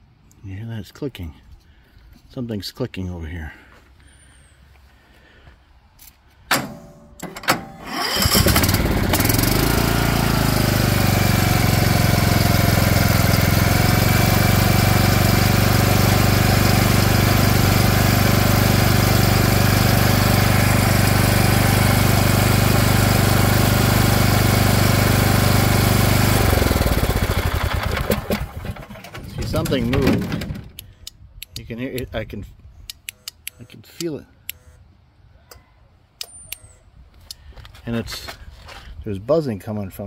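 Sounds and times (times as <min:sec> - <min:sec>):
lawn tractor engine running: 0:06.7 - 0:30.8
starter clicks: 0:29.5 - 0:32.2, 0:32.8 - 0:34.7.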